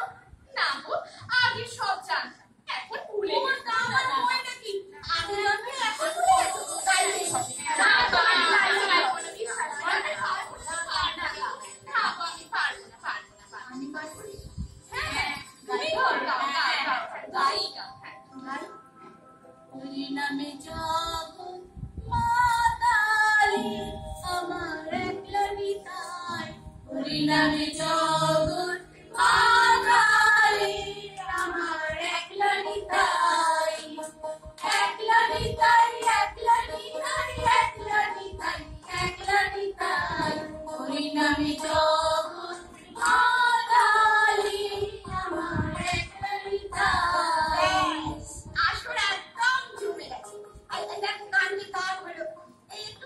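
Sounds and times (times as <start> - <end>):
women singing together: 5.0 - 12.3, 22.1 - 50.0.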